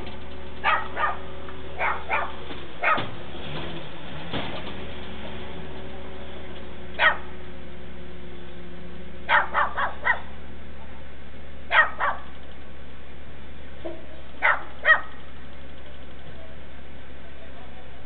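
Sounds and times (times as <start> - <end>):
steady low hum: 0.0 - 18.0
dog barking: 0.6 - 3.1, 7.0 - 7.3, 9.3 - 10.3, 11.7 - 12.3, 14.4 - 15.2.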